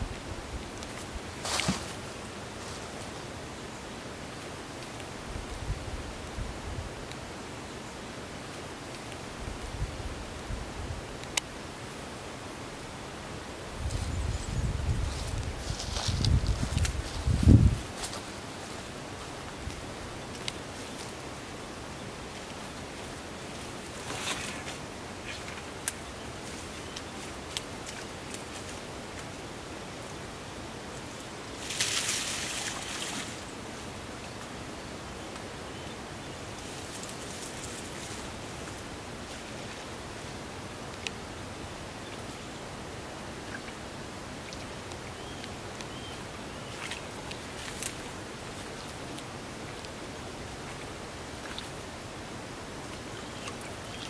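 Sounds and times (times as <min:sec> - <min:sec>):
shrub leaves rustling: 0:00.0 - 0:03.1, 0:13.8 - 0:21.4, 0:22.3 - 0:29.3, 0:31.5 - 0:33.9, 0:36.4 - 0:40.3
steady outdoor hiss: 0:00.0 - 0:54.0.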